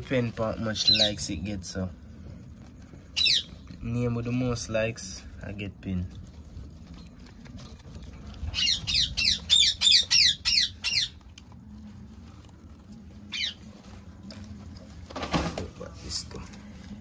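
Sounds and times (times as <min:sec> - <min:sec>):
animal squawking: 0:03.1 - 0:03.8, 0:08.4 - 0:11.5, 0:13.2 - 0:13.8.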